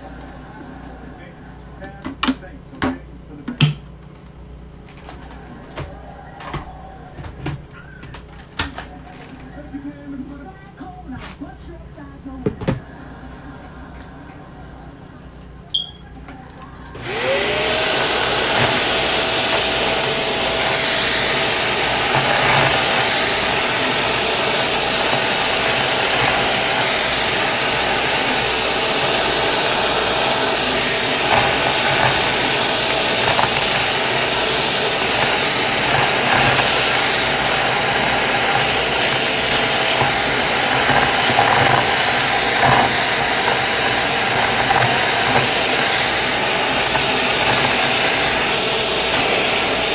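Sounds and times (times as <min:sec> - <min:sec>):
vacuum cleaner motor whine: 0:04.2 - 0:11.6, 0:14.9 - 0:49.9
rushing suction: 0:17.0 - 0:49.9.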